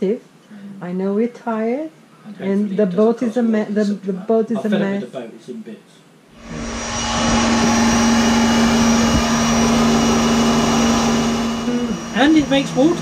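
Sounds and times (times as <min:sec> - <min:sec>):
pressure washer motor running: 0:06.4 - 0:13.0.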